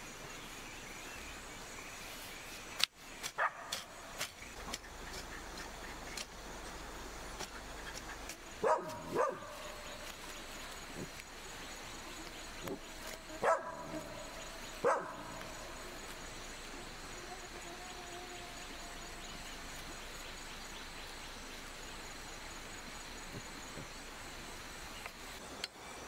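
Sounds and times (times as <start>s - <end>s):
steady background hiss: 0.0s - 26.0s
dog barking: 3.4s - 3.8s, 8.6s - 9.6s, 13.4s - 14.1s, 14.8s - 15.2s.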